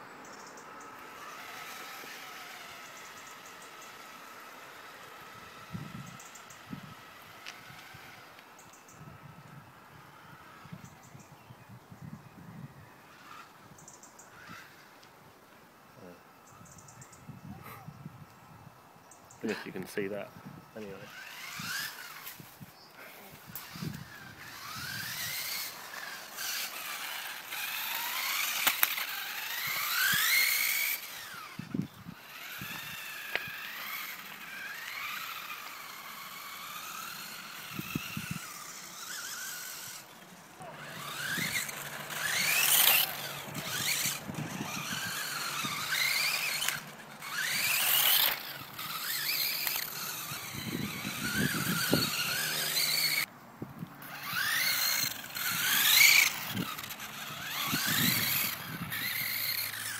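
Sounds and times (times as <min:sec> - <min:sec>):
toy car electric motor whining: 0:00.0 - 0:18.3, 0:19.3 - 0:59.9.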